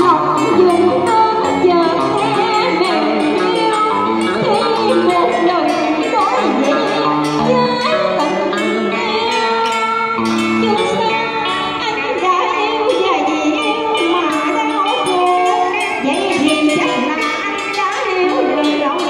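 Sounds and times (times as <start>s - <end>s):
electric guitar: 0.0s - 19.0s
woman singing through loudspeaker: 0.0s - 19.0s.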